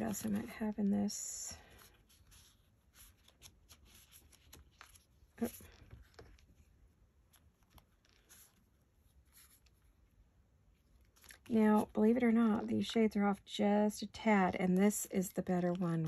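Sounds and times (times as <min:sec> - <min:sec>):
paper sheets rustling: 0:00.0 - 0:06.7.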